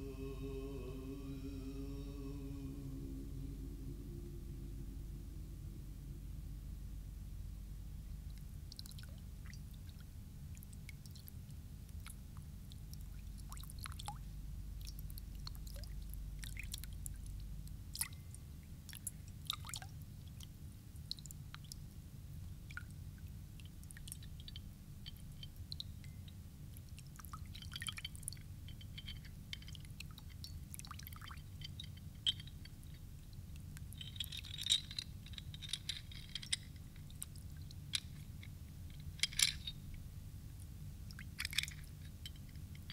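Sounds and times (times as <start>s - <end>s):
low hum: 0.0s - 8.4s.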